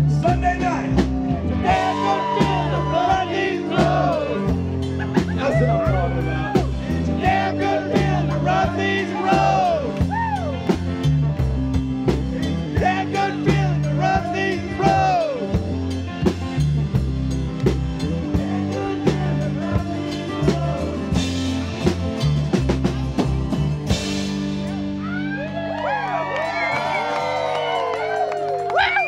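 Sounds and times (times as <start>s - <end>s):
drum kit beat: 0.0s - 25.3s
live rock band playing: 0.0s - 29.0s
person singing: 1.6s - 4.5s, 18.3s - 21.5s.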